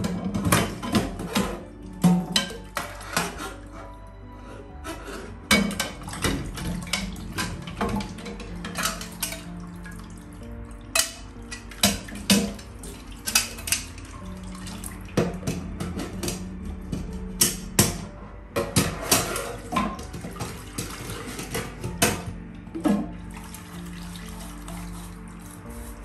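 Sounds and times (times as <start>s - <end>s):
metal utensils clanking in sink: 0.0s - 4.0s, 4.8s - 9.7s, 10.8s - 16.6s, 18.6s - 23.2s
background music: 0.0s - 26.0s
running tap water: 5.5s - 16.3s, 19.0s - 26.0s.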